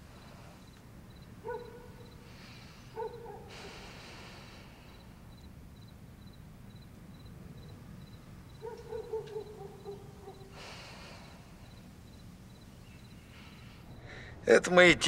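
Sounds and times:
breath: 0:00.0 - 0:00.8, 0:02.2 - 0:05.2, 0:10.5 - 0:11.8, 0:13.2 - 0:14.4.

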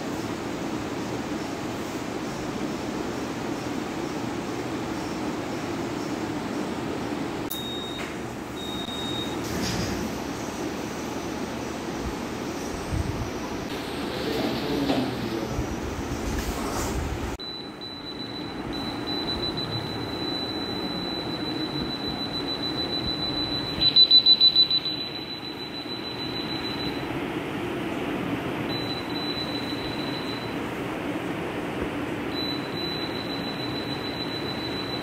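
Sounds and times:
steady low hum: 0:00.0 - 0:35.0
rapid loud beeps: 0:07.5 - 0:09.4, 0:17.4 - 0:27.1, 0:28.7 - 0:30.6, 0:32.3 - 0:35.0
steady high electronic tone: 0:17.4 - 0:27.2.

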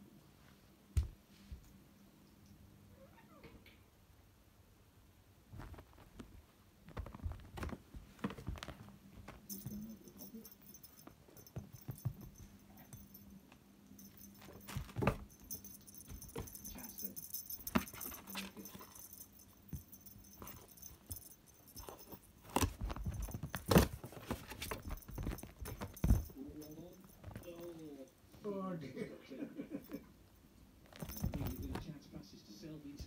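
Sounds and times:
cardboard rustling: 0:22.0 - 0:26.4.

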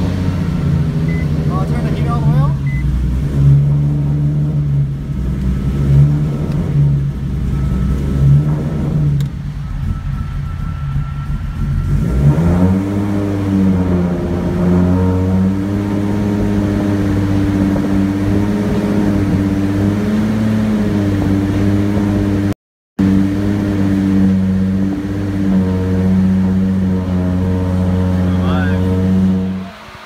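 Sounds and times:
car engine fast idling: 0:00.0 - 0:14.6.

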